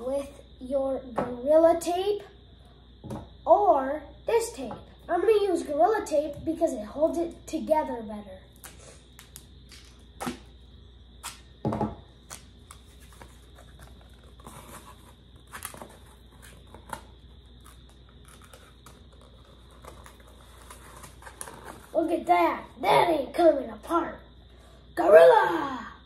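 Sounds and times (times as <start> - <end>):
tape ripping off roll: 8.6 - 10.5, 12.2 - 22.0
thump: 11.6 - 12.0
cardboard crinkling: 12.4 - 22.0.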